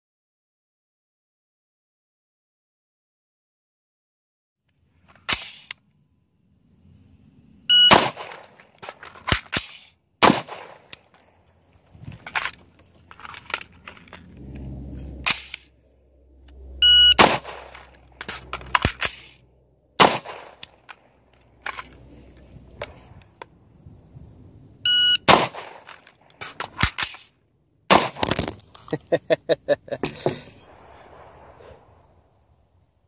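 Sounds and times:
magazine change clicks: 5.2 - 5.8, 7.9 - 11.3, 15.2 - 15.7, 17.2 - 19.4, 20.0 - 22.0, 25.3 - 27.3
shot timer beeping: 7.7 - 8.0, 16.8 - 17.2, 24.9 - 25.3
rifle shots: 7.8 - 11.1, 17.1 - 19.4, 20.0 - 21.1, 25.2 - 27.3, 27.9 - 28.4.

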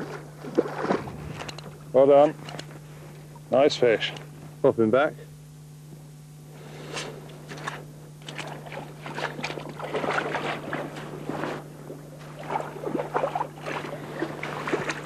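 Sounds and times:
water splashing and sloshing: 0.0 - 1.8, 7.6 - 15.0
steady low hum: 0.0 - 15.0.

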